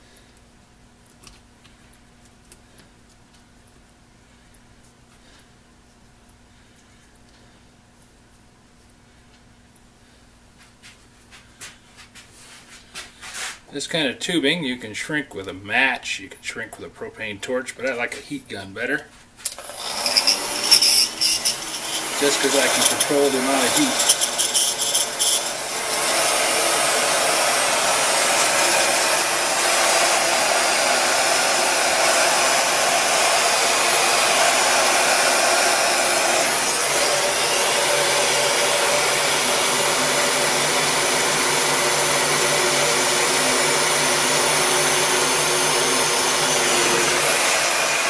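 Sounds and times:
heat gun blowing: 19.5 - 48.0.

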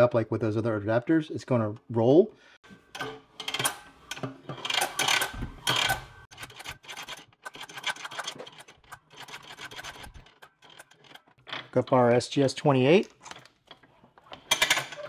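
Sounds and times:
hose scraping on reel: 4.6 - 11.3.

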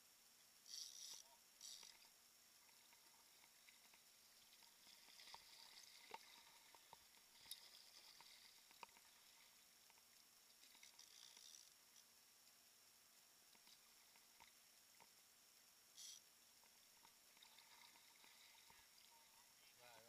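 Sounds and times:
paddle splashing and dripping: 2.6 - 11.1, 16.6 - 19.6.

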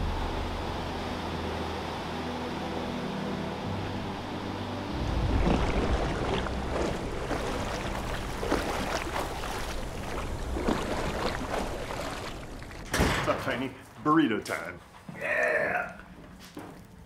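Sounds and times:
sea water splashing: 4.8 - 13.7.

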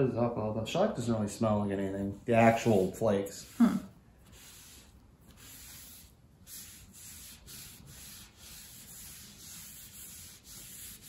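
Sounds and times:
hand rubbing on wooden board: 2.1 - 11.0.

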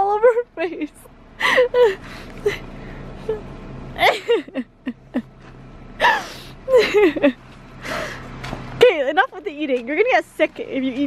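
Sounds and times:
woman exclaiming and laughing: 0.0 - 2.0
steady low hum: 0.0 - 11.0.

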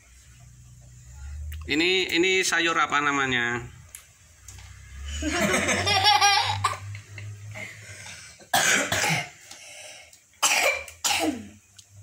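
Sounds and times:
child laughing: 5.2 - 7.0
coughs: 8.4 - 9.4, 10.4 - 11.6.

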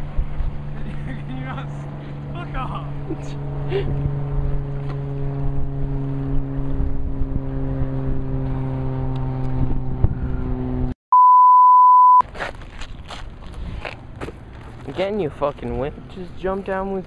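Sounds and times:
motorboat engine droning: 0.0 - 11.0
test-tone beep: 11.1 - 12.2.

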